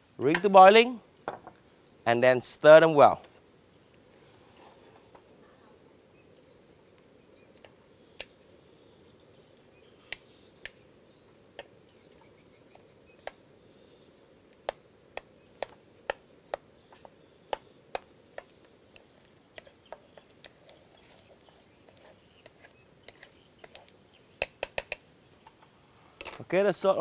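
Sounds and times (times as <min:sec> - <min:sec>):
wooden spatula scraping a wok: 0:19.0 - 0:24.0.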